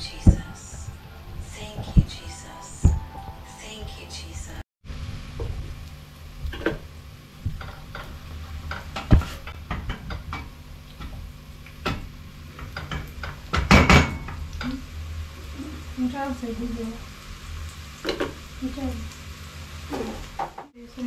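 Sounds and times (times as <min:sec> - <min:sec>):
steady low hum: 0:00.0 - 0:12.7.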